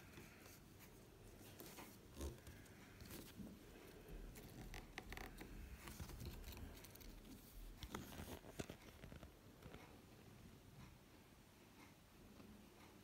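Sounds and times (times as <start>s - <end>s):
scratchy clicks and crackles: 0.1s - 10.0s.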